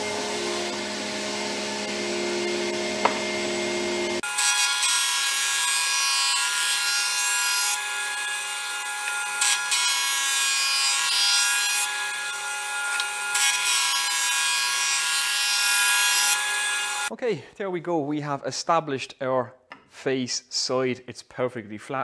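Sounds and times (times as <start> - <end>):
planer motor whine: 0.0 - 4.9.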